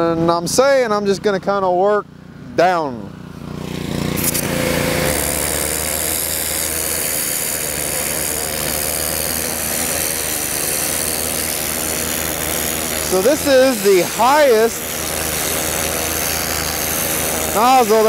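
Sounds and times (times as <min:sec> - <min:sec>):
pressure washer engine humming: 0:02.1 - 0:18.0
high-pressure water jet hissing: 0:04.1 - 0:18.0.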